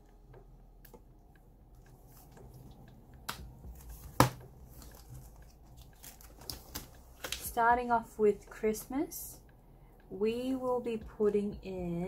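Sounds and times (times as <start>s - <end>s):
plastic binder taps and clicks: 3.2s - 5.2s, 5.9s - 7.5s.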